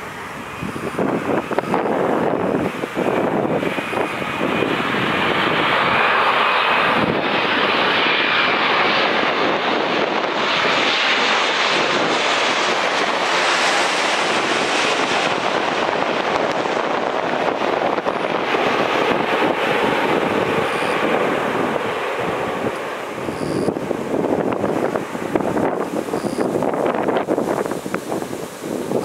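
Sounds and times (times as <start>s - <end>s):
faint high whine: 0.0s - 2.2s, 20.4s - 21.6s, 22.8s - 23.8s, 25.9s - 26.9s
jet engines roaring overhead: 0.0s - 29.0s.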